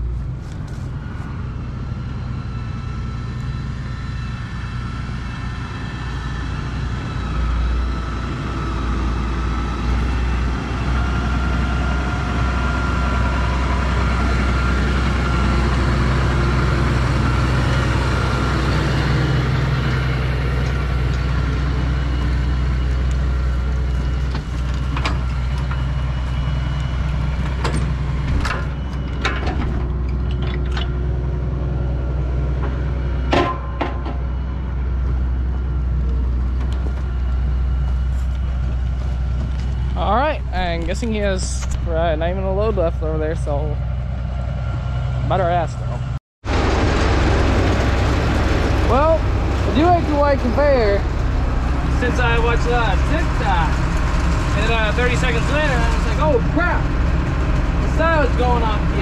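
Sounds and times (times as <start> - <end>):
tractor diesel engines running: 0.0 - 59.0
sharp metallic clanks: 32.6 - 34.4.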